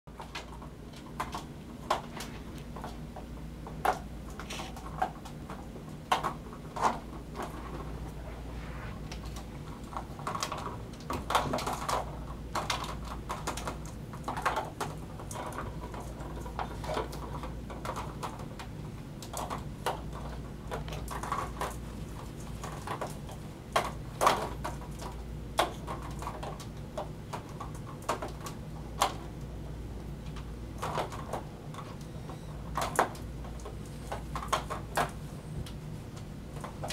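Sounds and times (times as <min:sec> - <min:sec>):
steady low hum: 0:00.1 - 0:27.7
kitten paws tapping and scuffing: 0:00.4 - 0:12.0.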